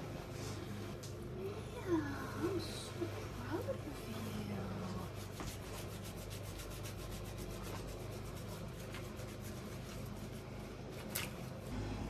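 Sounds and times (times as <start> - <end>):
hands rubbing lather into fur: 4.3 - 10.5.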